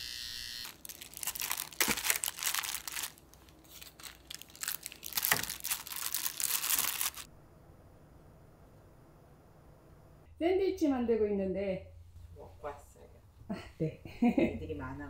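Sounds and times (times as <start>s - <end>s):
electric clipper buzz: 0.0s - 1.0s
paper and plastic crinkling: 0.6s - 7.3s.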